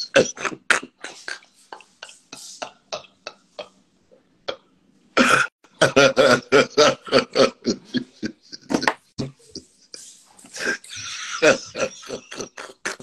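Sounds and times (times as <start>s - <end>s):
man laughing hard: 5.2s - 9.6s, 10.5s - 13.0s.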